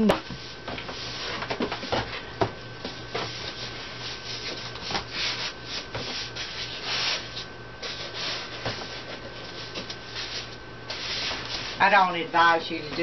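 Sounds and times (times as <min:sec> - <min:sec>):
cardboard rubbing and scraping: 0:03.0 - 0:11.8.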